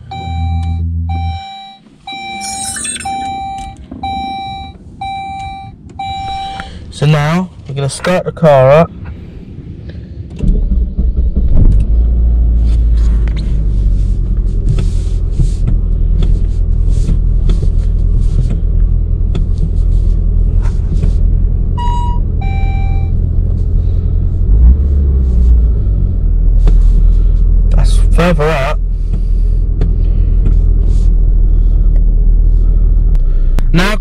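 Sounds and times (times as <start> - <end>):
car engine starting and idling: 0.0 - 34.0
short beeps: 0.1 - 6.7, 21.8 - 23.1.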